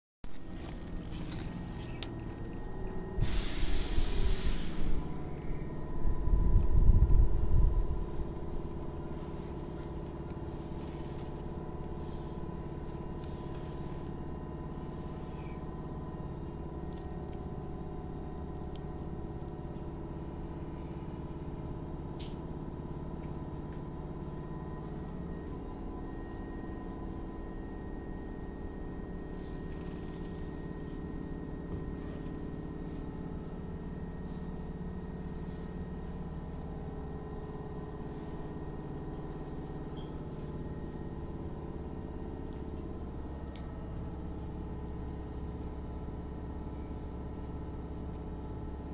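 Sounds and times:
train equipment hum: 0.2 - 48.9
low rumble: 0.3 - 46.9
rush of air: 3.2 - 5.2.

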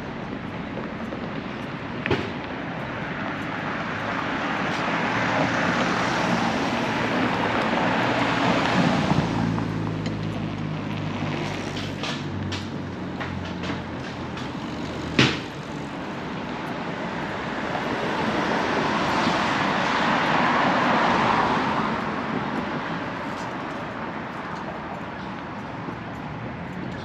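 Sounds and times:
engine hum: 0.0 - 27.0
vehicle passing: 2.7 - 27.0.

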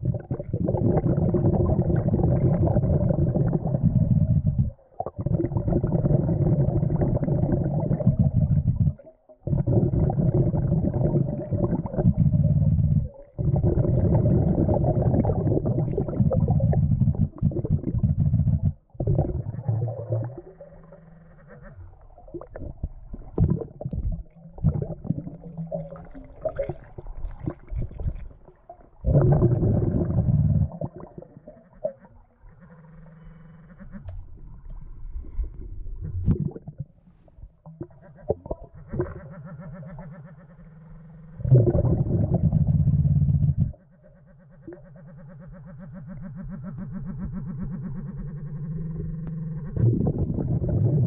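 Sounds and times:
low muffled rumbling: 0.0 - 4.8, 5.4 - 20.4, 29.0 - 31.1, 41.4 - 43.8, 48.8 - 51.0
exhaled bubbles gurgling underwater: 0.0 - 40.4, 41.4 - 44.0, 45.9 - 51.0.

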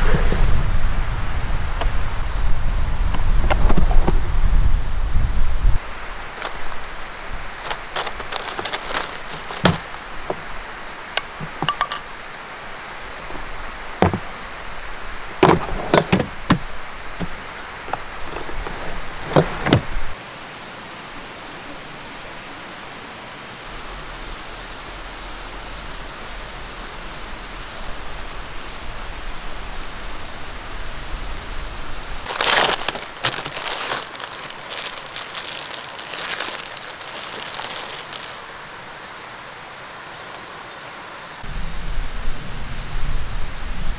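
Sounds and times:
outdoor background: 0.0 - 43.9
knocks and clicks of items handled: 6.3 - 6.6, 7.6 - 10.5, 11.2 - 12.1, 14.0 - 14.4, 15.4 - 20.0, 32.3 - 38.4
snack wrapper tearing and crinkling: 6.3 - 6.6, 7.6 - 9.9, 32.3 - 38.5.

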